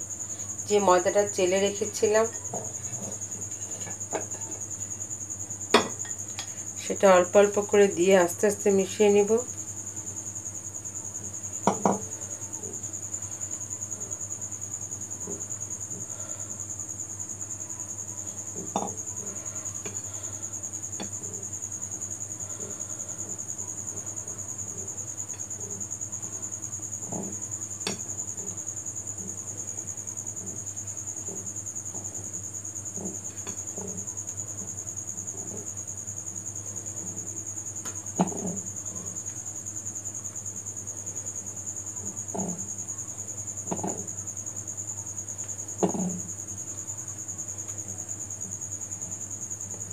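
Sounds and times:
spatula tapping bowl: 18.8 - 19.0.

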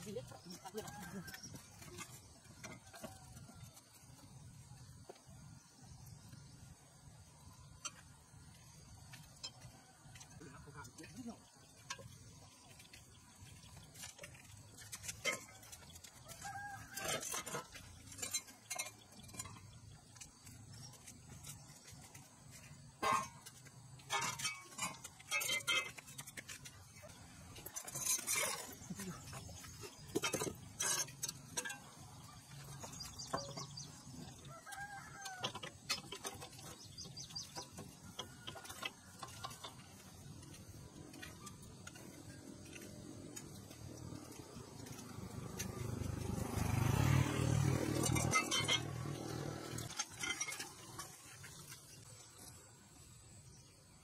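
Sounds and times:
metal clanks and knocks: 9.2 - 52.6
rooster crowing: 34.3 - 35.8.

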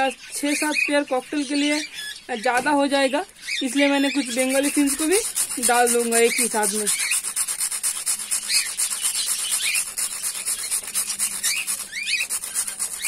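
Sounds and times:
rusk grated on metal grater: 4.2 - 13.0.

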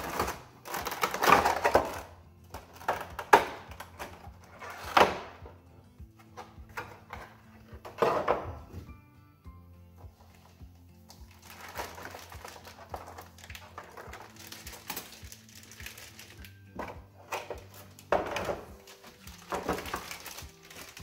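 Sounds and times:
faint music: 0.0 - 21.0
plastic packaging crinkling: 10.2 - 16.8, 17.4 - 21.0.

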